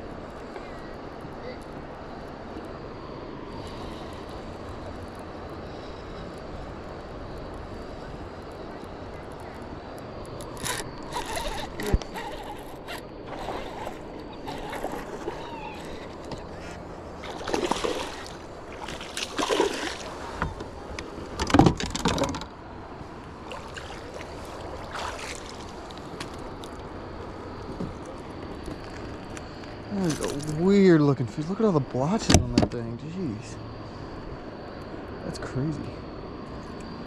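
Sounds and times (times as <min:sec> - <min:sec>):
water splashing around kayak: 0:03.5 - 0:29.4.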